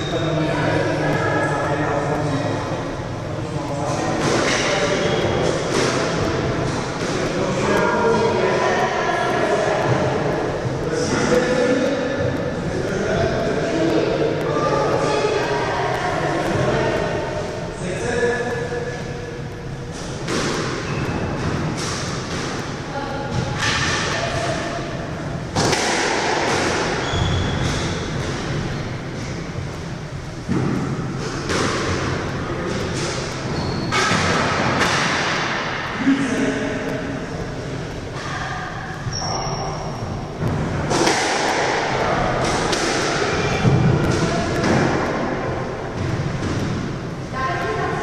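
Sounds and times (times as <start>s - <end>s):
squash ball struck by rackets: 4.2s - 8.2s, 19.9s - 24.7s, 25.5s - 28.7s, 30.5s - 35.8s, 40.4s - 47.1s
shoe squeaks: 20.8s - 21.4s, 27.0s - 28.1s, 33.4s - 34.0s, 39.0s - 40.2s
thuds echoing in a court: 25.5s - 29.4s, 30.4s - 35.9s, 40.4s - 47.1s.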